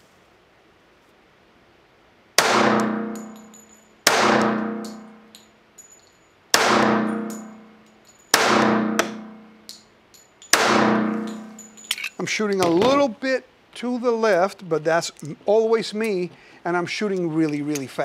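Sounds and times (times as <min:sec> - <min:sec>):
pistol shots ringing indoors: 0:02.4 - 0:05.1, 0:06.5 - 0:07.7, 0:08.3 - 0:09.5, 0:10.5 - 0:11.5.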